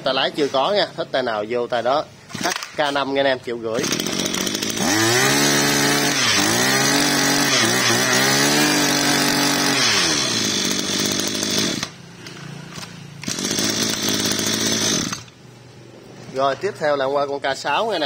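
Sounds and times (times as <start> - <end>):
brush-cutter engine revving: 2.3 - 2.8, 3.7 - 15.4.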